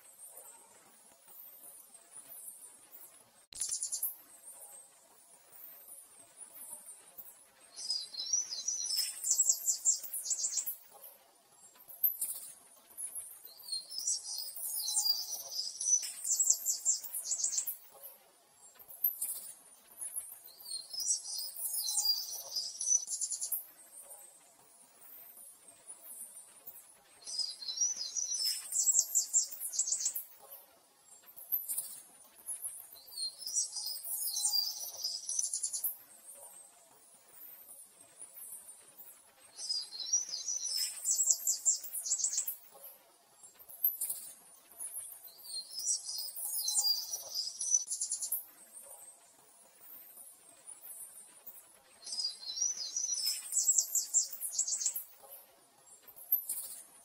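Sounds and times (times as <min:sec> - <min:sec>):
small birds chirping: 0:00.0 - 0:04.9, 0:05.6 - 0:57.0
bird-like chirping and trilling: 0:45.3 - 0:48.4, 0:52.0 - 0:55.1.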